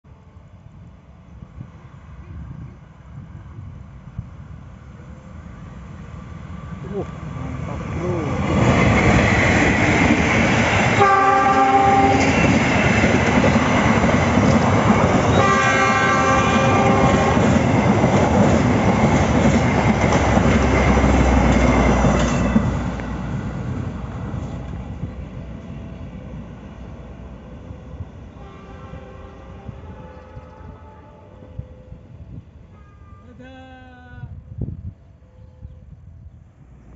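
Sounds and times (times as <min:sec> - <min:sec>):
train wheels rumbling on rails: 0:00.7 - 0:31.6
locomotive horn blasts: 0:11.0 - 0:12.3, 0:15.3 - 0:17.4, 0:28.4 - 0:31.7, 0:32.8 - 0:33.4.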